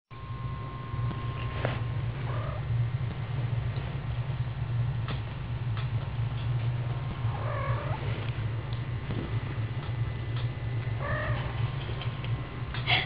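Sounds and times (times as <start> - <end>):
steady low rumble: 0.1 - 13.0.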